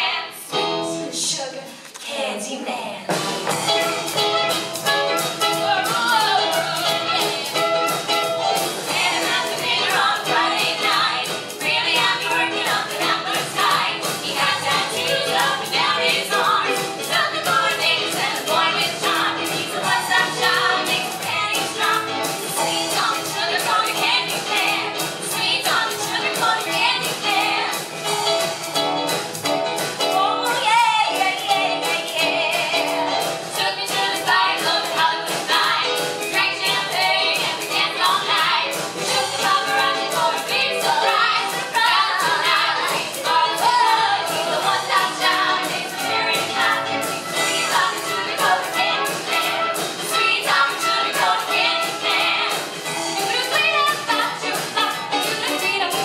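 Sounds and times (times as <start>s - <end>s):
women singing in harmony: 0.0s - 2.9s, 5.4s - 8.0s, 8.8s - 27.9s, 30.1s - 56.0s
live band playing: 0.3s - 1.8s, 2.8s - 56.0s
drums keeping a steady beat: 3.1s - 56.0s.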